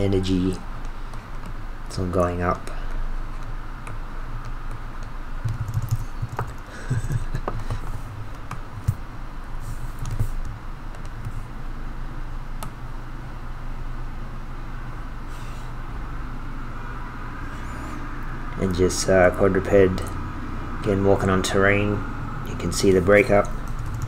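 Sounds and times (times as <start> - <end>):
low steady hum: 0.0 - 24.0
keyboard and mouse clicks: 3.3 - 6.7, 9.9 - 11.4.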